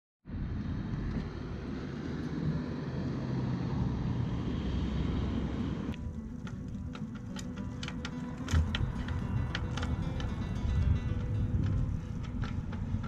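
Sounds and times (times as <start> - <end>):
car traffic passing: 0.3 - 13.0
sharp ticking clicks: 5.9 - 13.0.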